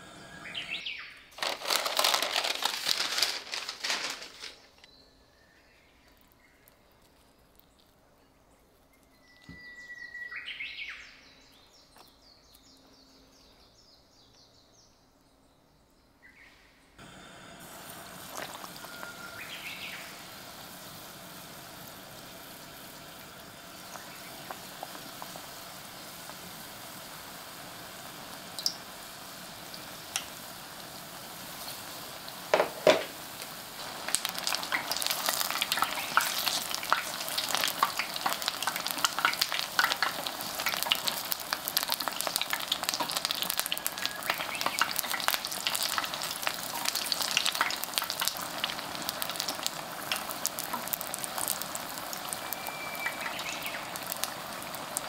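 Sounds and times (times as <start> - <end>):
oil sizzling and crackling: 0.0 - 4.9, 17.0 - 55.0.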